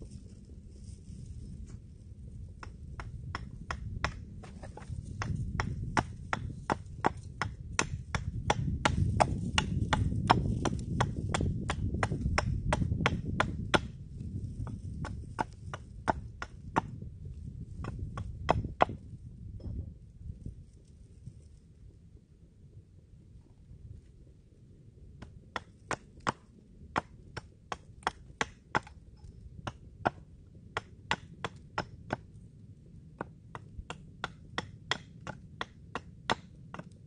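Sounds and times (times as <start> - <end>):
hatchet chopping wood: 2.6 - 17.0, 17.7 - 19.0, 25.2 - 29.0, 29.6 - 32.3, 33.2 - 37.0.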